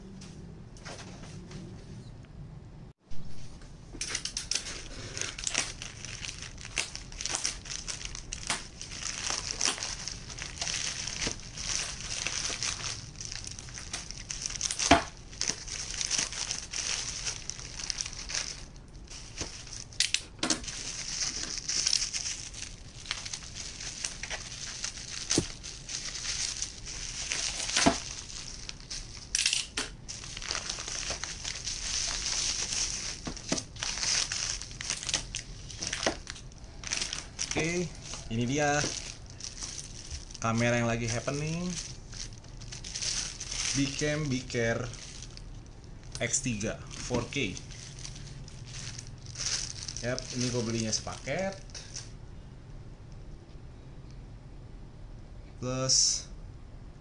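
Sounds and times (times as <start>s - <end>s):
plastic packaging crinkling: 4.1s - 52.2s.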